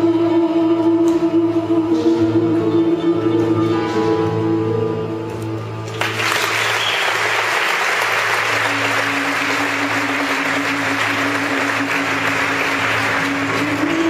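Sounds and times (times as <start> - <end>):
background music with low notes: 0.0 - 6.3, 7.2 - 14.0
audience applause: 5.8 - 14.0.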